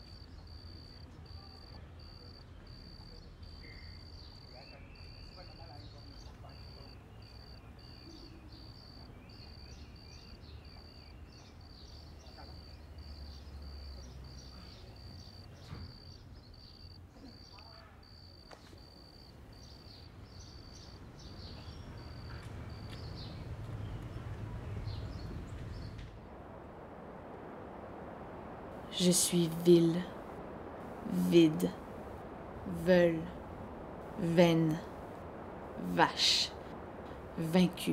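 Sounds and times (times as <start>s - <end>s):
cricket chirping: 0.0s - 37.9s
low rumble: 21.1s - 37.9s.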